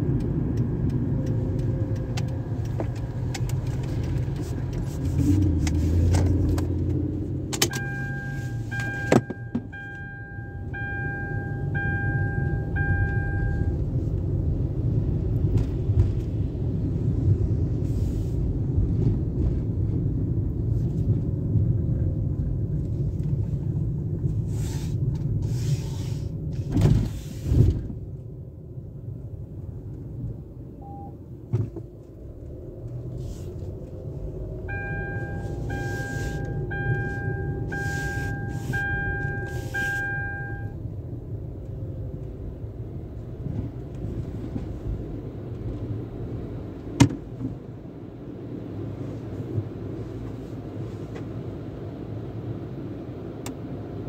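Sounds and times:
car engine and tyres rumbling: 0.0s - 54.0s
electronic chime beeping: 7.8s - 13.7s.

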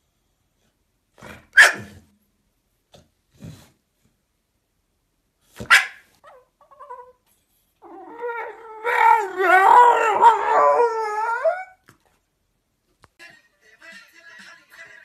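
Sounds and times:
dog howling whine: 7.8s - 11.8s.

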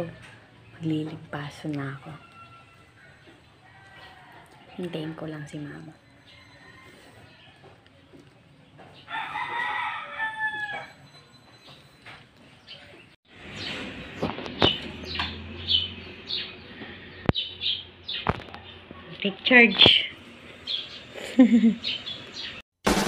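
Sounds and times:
rooster crowing: 2.1s - 4.7s, 6.1s - 7.8s, 9.1s - 11.1s.

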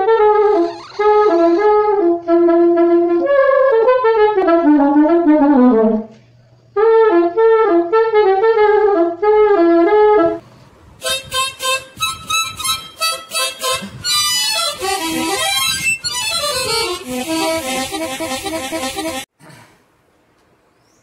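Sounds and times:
solo saxophone melody: 0.0s - 6.1s, 6.8s - 10.4s, 11.0s - 19.3s
reedy instrument repeated chords: 11.0s - 19.3s.

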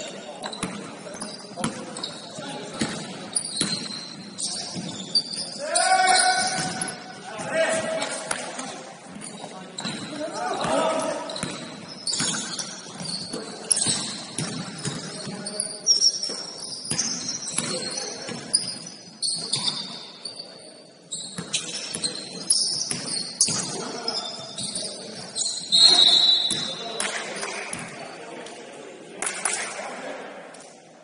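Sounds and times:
sneaker squeaks on floor: 0.0s - 8.3s, 9.1s - 28.2s
basketball bouncing: 11.4s - 15.1s.

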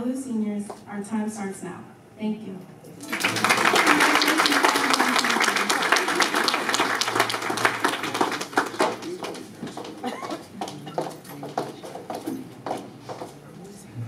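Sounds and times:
audience applauding: 3.0s - 13.3s.

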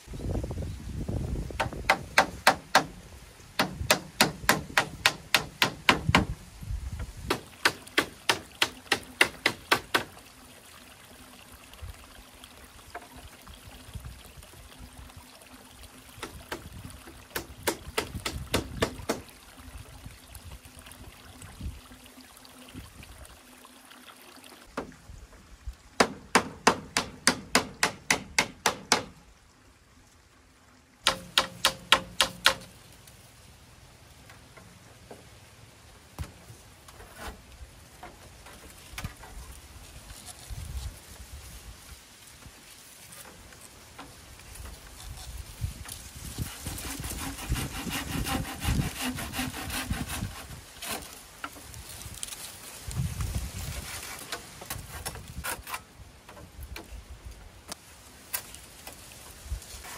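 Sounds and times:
hand tool striking dried bamboo: 1.6s - 3.0s, 3.6s - 6.3s, 7.3s - 10.1s, 31.0s - 32.7s.

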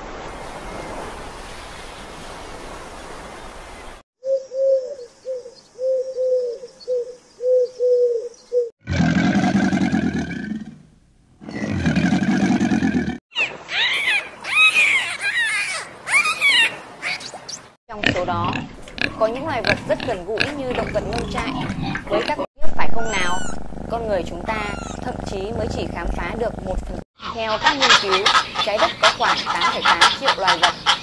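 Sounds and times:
crocodile calls: 18.0s - 31.0s
animal hissing: 23.2s - 27.0s.

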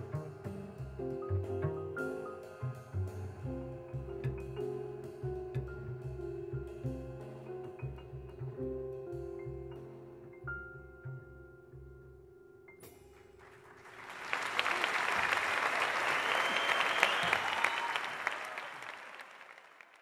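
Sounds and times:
audience applause: 13.4s - 20.0s.

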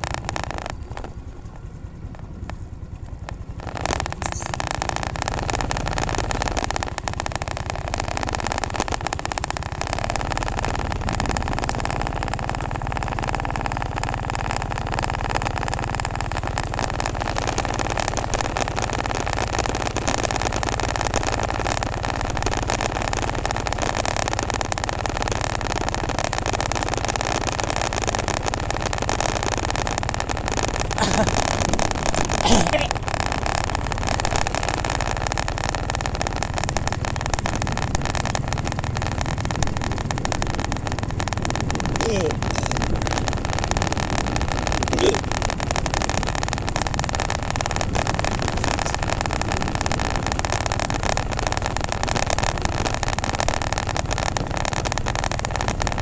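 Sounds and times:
motorcycle riding: 0.0s - 56.0s
wind over microphone: 28.7s - 56.0s.

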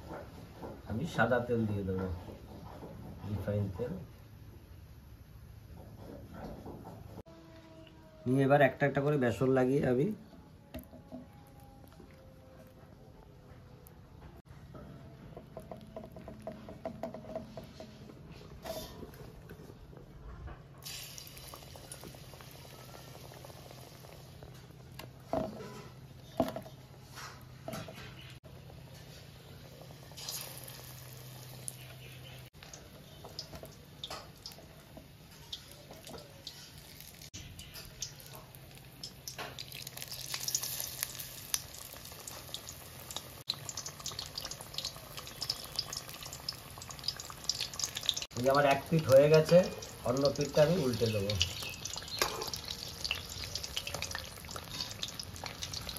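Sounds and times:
hot oil sizzling: 20.8s - 26.3s, 28.2s - 55.9s.

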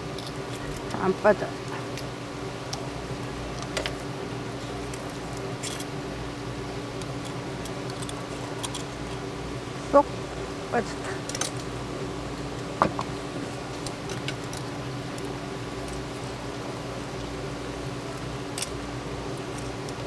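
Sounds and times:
scissors clicking and scraping shell: 0.0s - 1.0s, 4.7s - 5.9s, 7.0s - 9.2s
steady background hum: 0.0s - 20.0s.

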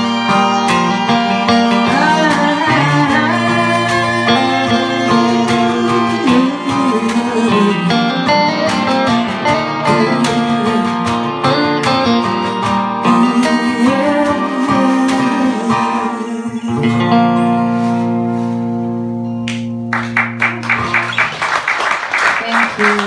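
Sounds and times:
fiddle: 0.0s - 17.5s
strummed acoustic guitar: 0.0s - 21.2s
woman singing: 1.7s - 12.3s, 13.0s - 17.5s.

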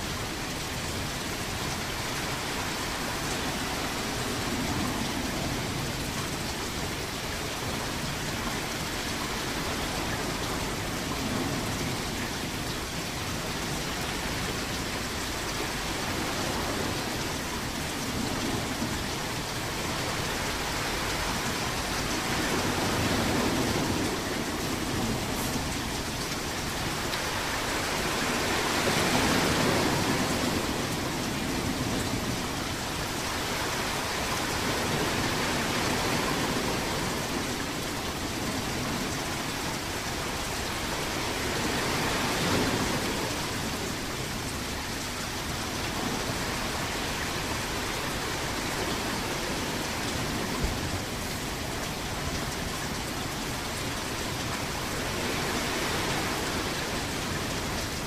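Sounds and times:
waves breaking: 27.2s - 32.3s, 40.4s - 44.6s, 54.6s - 58.0s.

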